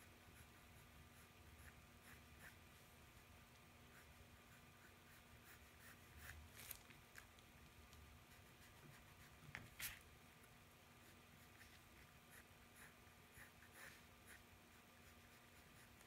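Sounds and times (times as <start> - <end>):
pencil scratching on paper: 0.0 - 3.3, 3.9 - 6.5, 8.2 - 10.0, 11.0 - 16.0.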